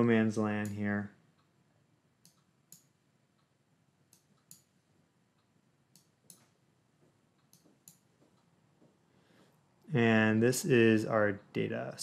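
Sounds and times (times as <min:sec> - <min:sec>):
computer mouse clicks: 0:02.2 - 0:03.5, 0:04.1 - 0:04.8, 0:05.9 - 0:06.6, 0:07.4 - 0:08.5.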